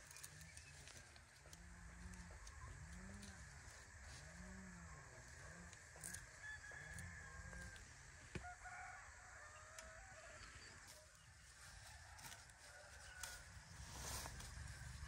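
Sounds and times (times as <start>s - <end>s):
distant rooster crowing: 6.1s - 10.9s, 11.6s - 14.9s.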